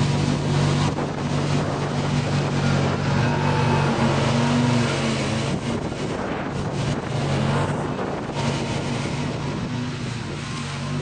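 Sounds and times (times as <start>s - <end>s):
mower cutting dry grass: 0.0s - 11.0s.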